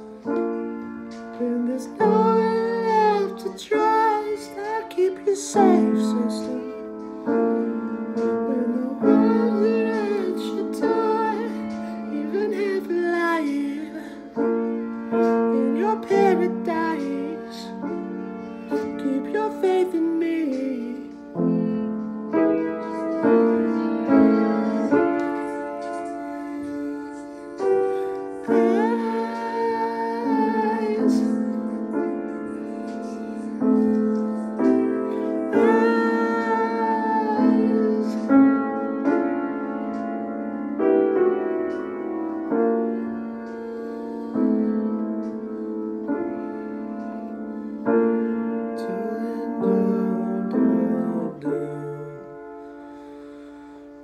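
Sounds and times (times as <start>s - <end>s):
piano chords: 0.0s - 54.0s
man singing: 1.3s - 6.9s, 8.4s - 14.3s, 15.2s - 17.9s, 18.7s - 21.2s, 22.9s - 32.1s, 35.1s - 38.6s, 48.8s - 52.5s.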